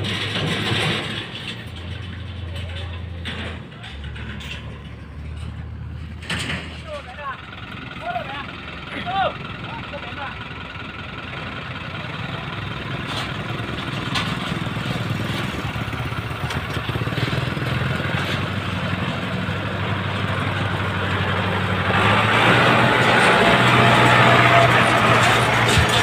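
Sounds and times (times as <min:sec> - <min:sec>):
tractor engine under load: 0:00.0 - 0:26.0
motorbike engine passing: 0:20.2 - 0:26.0.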